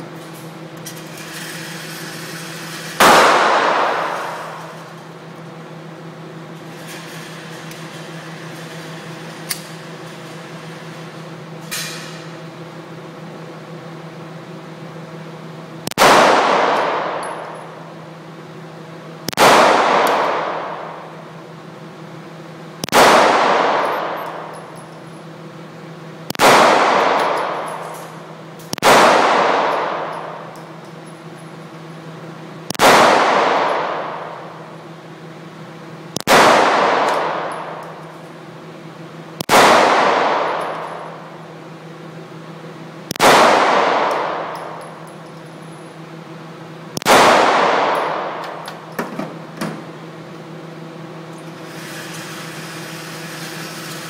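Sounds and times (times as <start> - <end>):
pistol shots echoing indoors: 1.6 - 6.1, 15.9 - 18.1, 19.3 - 21.4, 22.8 - 24.9, 26.2 - 35.0, 36.1 - 38.3, 39.4 - 42.1, 43.0 - 46.3, 46.9 - 50.1.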